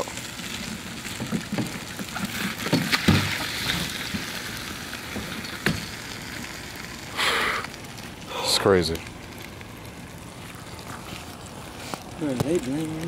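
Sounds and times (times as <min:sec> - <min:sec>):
smouldering clothes hissing: 0:07.1 - 0:07.7.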